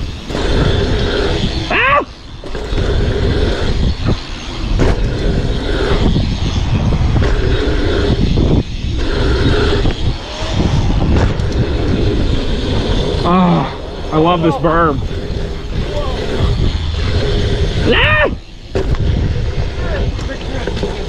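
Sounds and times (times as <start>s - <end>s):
tyres rolling on packed dirt: 0.0s - 21.0s
wind buffeting microphone: 0.0s - 21.0s.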